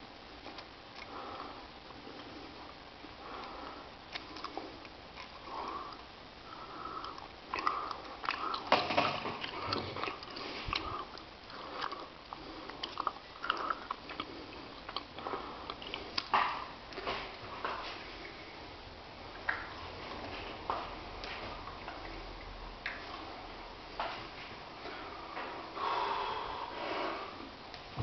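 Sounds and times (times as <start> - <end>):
hard breathing through nose: 1.0 - 16.3, 24.8 - 27.6.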